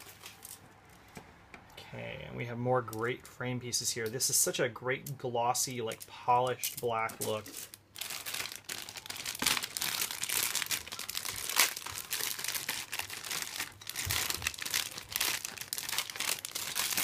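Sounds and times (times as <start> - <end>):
plastic bags crinkling: 0.0 - 0.6, 5.6 - 17.0.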